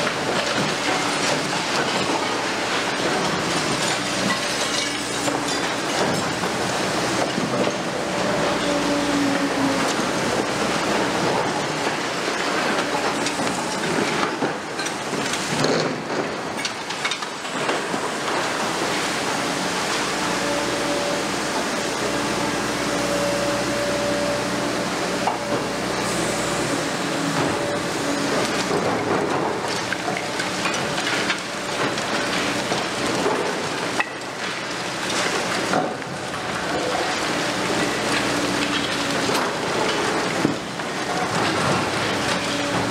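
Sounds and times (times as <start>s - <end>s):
concrete rubble crunching and falling: 0.0s - 9.1s, 27.2s - 42.9s
excavator engine and hydraulics drone: 0.0s - 42.9s.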